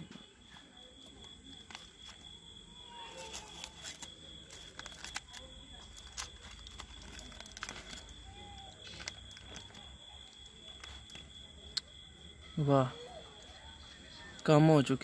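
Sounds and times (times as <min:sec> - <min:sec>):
foil crinkling: 0:02.9 - 0:11.3.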